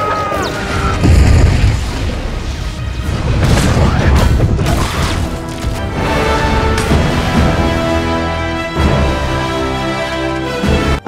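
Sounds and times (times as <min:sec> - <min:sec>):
loud orchestral music: 0:02.4 - 0:11.0.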